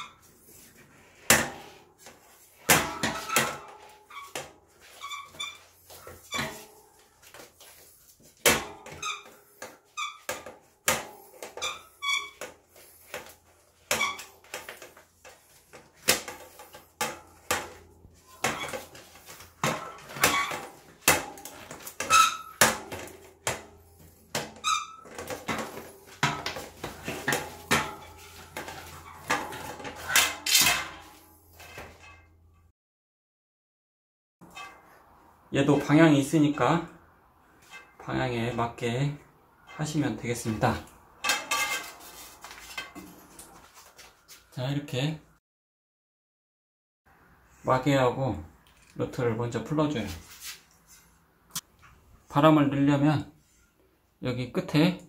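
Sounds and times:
tyre squeaking against rim: 0:00.0 - 0:00.3, 0:02.9 - 0:07.7, 0:08.5 - 0:30.6.

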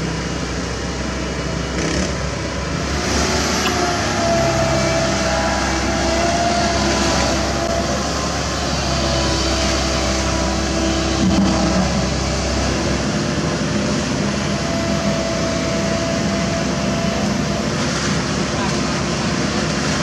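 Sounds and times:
excavator diesel engine rumbling: 0:00.0 - 0:20.0.

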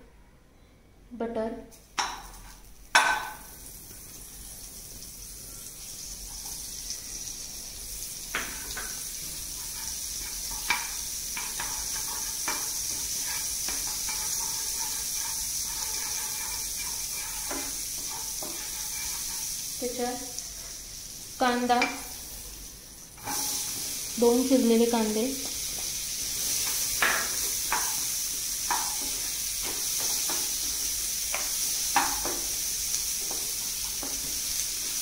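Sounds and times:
butter sizzling in frying pan: 0:01.8 - 0:35.0
spatula tapping against pan: 0:09.7 - 0:19.4, 0:26.7 - 0:28.0, 0:28.6 - 0:30.6, 0:31.3 - 0:32.5.

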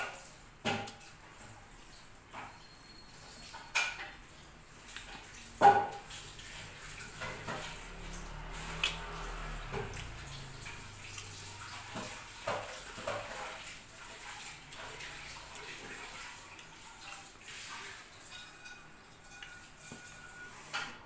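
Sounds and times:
wet chewing and lip-smacking: 0:04.7 - 0:13.3.

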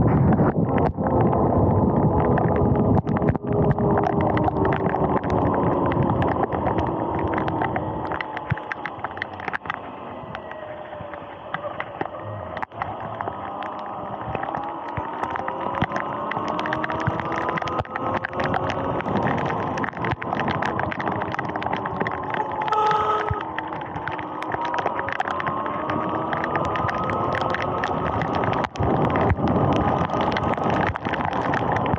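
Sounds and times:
rain clicks on camera: 0:00.0 - 0:31.9
steady tone: 0:22.7 - 0:23.5.

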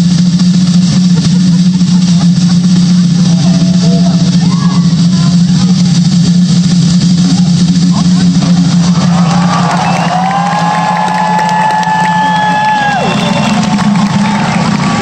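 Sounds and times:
crowd whooping and cheering: 0:08.4 - 0:15.0.

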